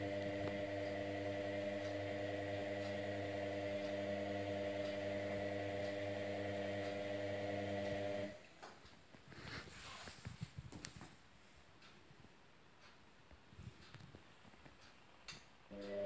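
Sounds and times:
washing machine humming: 0.0s - 8.4s, 15.7s - 16.0s.

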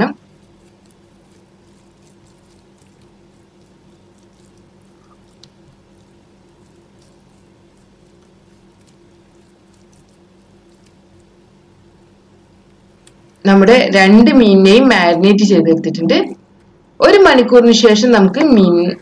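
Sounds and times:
hands rubbing paste into fish: 0.0s - 13.5s
steady low hum: 0.0s - 19.0s.

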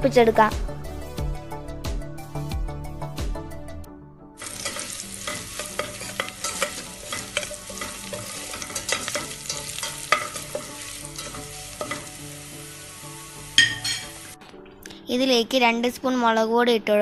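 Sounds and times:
spoon scraping a metal pot: 4.4s - 14.3s
spices sizzling in hot oil: 4.4s - 14.4s.

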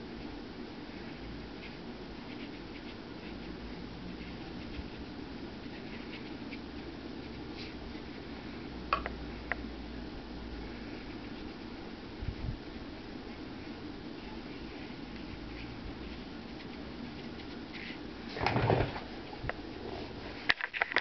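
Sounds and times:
brush scratching on paper: 1.6s - 8.4s, 10.8s - 11.7s, 14.2s - 18.0s.

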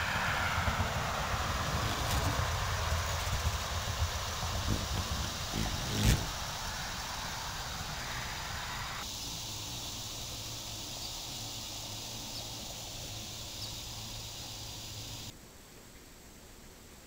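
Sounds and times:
broad hiss: 0.0s - 15.4s
high insect chorus: 0.0s - 15.4s
constant low hum: 0.0s - 17.0s.

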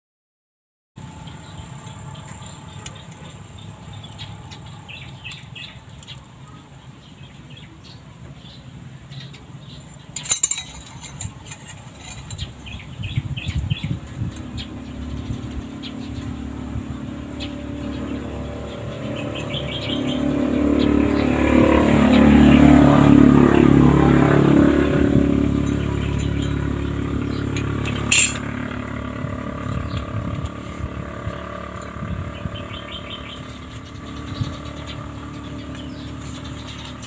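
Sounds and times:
sharp metallic clack: 10.2s - 12.9s, 25.5s - 28.7s.

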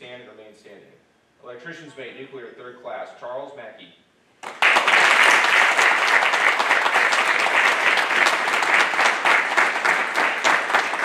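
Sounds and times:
crowd clapping: 4.4s - 11.0s.

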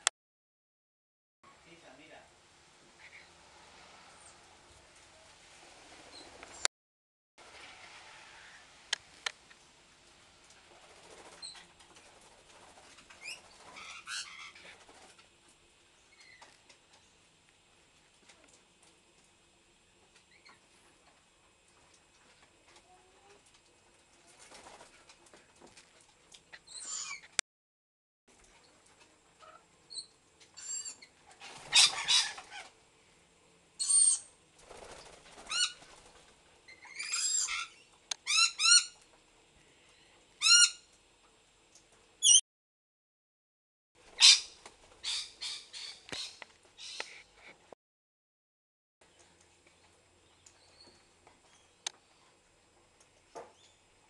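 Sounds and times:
parrots chirping: 13.2s - 14.8s, 26.6s - 27.3s, 29.9s - 32.7s, 33.8s - 34.3s, 36.7s - 39.0s, 40.4s - 40.8s, 42.2s - 42.4s, 44.1s - 47.2s.

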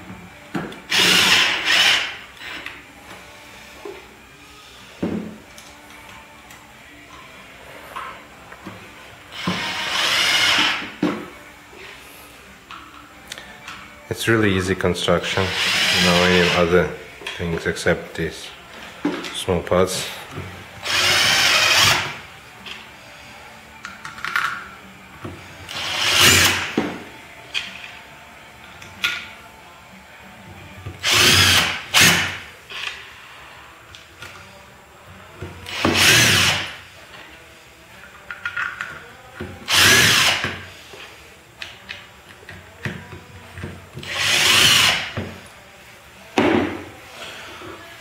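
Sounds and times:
cordless drill motor whine: 15.5s - 16.6s, 39.7s - 40.4s, 44.1s - 45.0s
cordless screwdriver motor: 31.0s - 32.2s, 39.7s - 40.4s.

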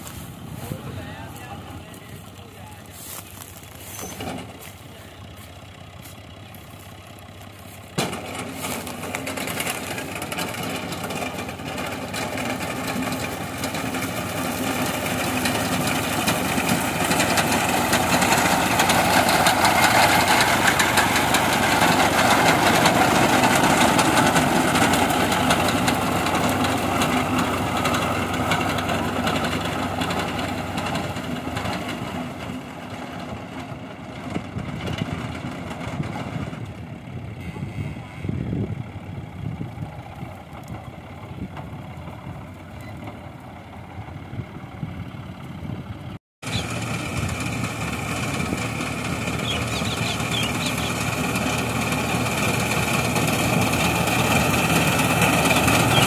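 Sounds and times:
tractor engine running under load: 0.0s - 56.0s.

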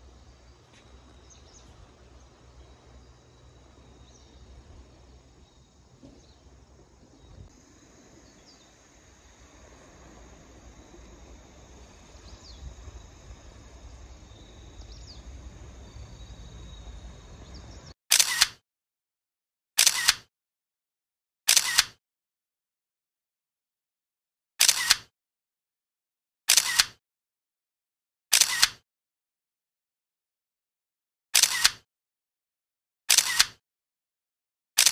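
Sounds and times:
bird chirps: 0.0s - 9.3s, 10.8s - 18.0s
insects trilling: 0.0s - 17.9s
low rumble: 0.0s - 17.9s
camera shutter click: 18.1s - 18.6s, 19.8s - 20.3s, 21.5s - 22.0s, 24.6s - 25.1s, 26.5s - 27.0s, 28.3s - 28.8s, 31.4s - 31.8s, 33.1s - 33.6s.

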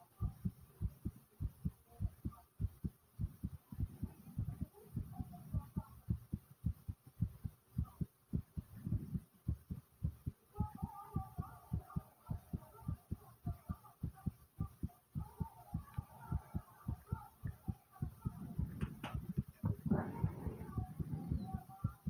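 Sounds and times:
heart beating fast: 0.1s - 22.0s
stomach gurgle: 17.5s - 22.0s.

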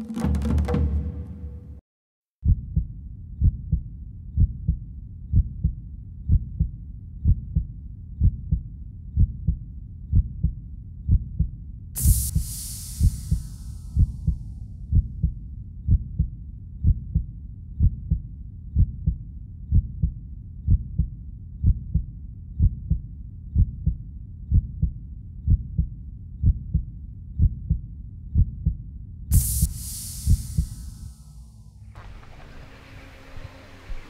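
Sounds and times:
heartbeat thumps: 2.4s - 31.7s
loud hiss: 12.0s - 14.6s, 29.3s - 34.0s.

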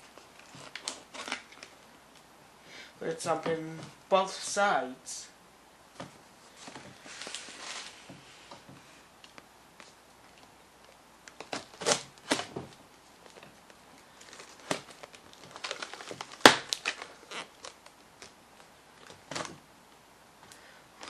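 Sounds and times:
tape and cardboard scrapes: 6.5s - 8.9s.

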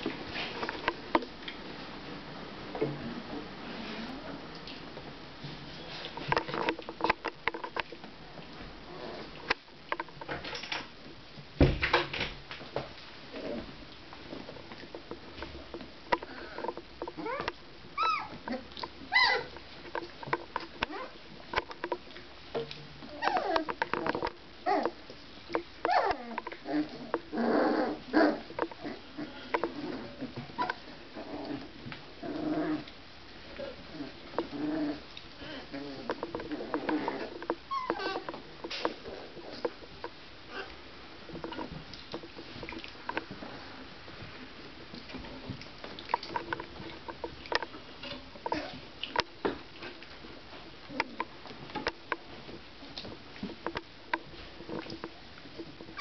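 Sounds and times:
small knocks and scrabbling: 0.0s - 1.8s, 4.5s - 56.0s
puppies yipping and squeaking: 17.2s - 18.4s, 19.1s - 19.5s, 23.1s - 23.6s, 25.9s - 26.3s, 37.7s - 38.3s
puppies vocalizing: 17.2s - 19.6s, 36.4s - 38.3s.

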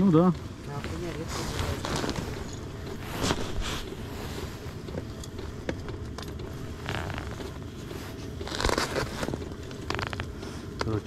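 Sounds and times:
gear handling clicks and knocks: 0.2s - 11.0s
fabric rubbing on microphone: 0.7s - 4.9s, 6.6s - 10.4s.

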